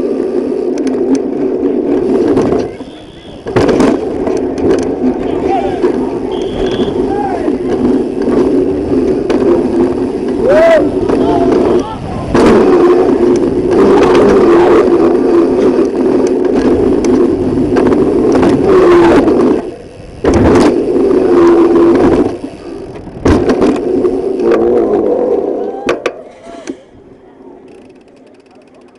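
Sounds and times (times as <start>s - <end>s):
loud rushing wind noise: 0.0s - 25.6s
camera rattle: 0.7s - 14.3s, 15.5s - 20.9s.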